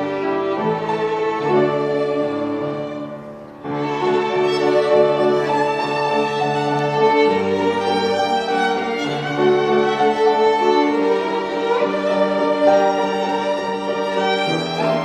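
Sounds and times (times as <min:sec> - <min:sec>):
bowed string instrument: 0:00.0 - 0:15.0
piano accompaniment: 0:00.0 - 0:15.0
violin melody: 0:00.0 - 0:15.0.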